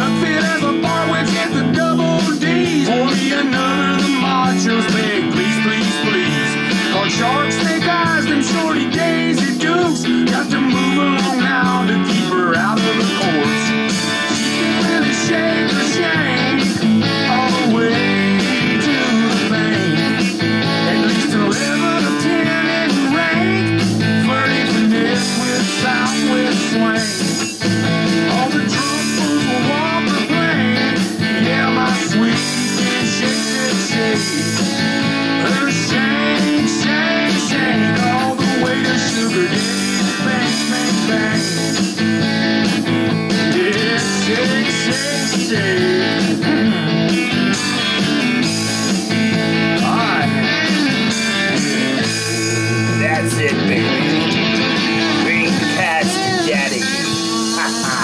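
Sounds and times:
blues-rock band playing: 0:00.0 - 0:58.0
lead guitar bending notes: 0:46.0 - 0:58.0.

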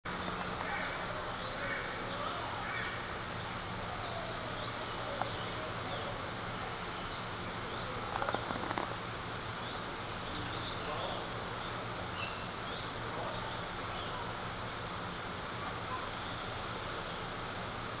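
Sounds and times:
steady low hum: 0:00.1 - 0:18.0.

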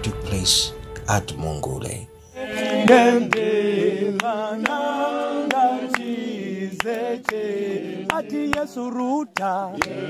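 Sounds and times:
women singing a hymn: 0:02.4 - 0:10.0
sharp hand claps: 0:03.3 - 0:04.8, 0:05.4 - 0:06.2, 0:06.8 - 0:07.5, 0:08.1 - 0:08.7, 0:09.3 - 0:10.0.

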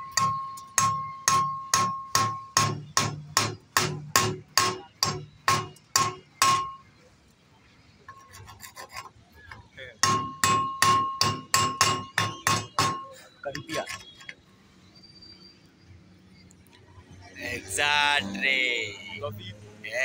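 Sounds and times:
metal bar striking steel: 0:00.0 - 0:06.8, 0:10.0 - 0:13.2
faint metal scrapes: 0:08.1 - 0:09.3.

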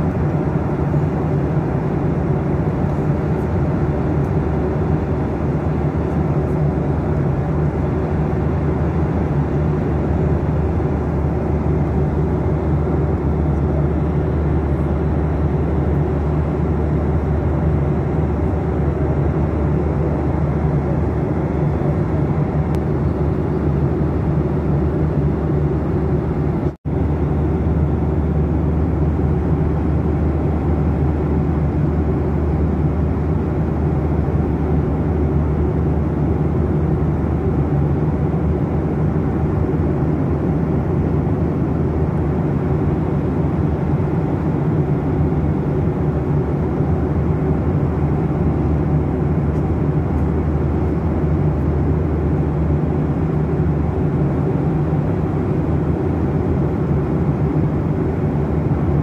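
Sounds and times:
airliner cabin noise: 0:00.0 - 0:59.0.

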